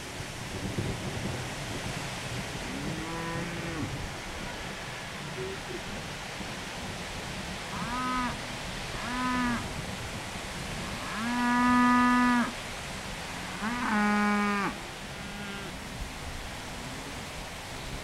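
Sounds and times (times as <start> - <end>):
steady background hiss: 0.0 - 18.0
cattle mooing: 2.7 - 4.0, 13.4 - 15.8.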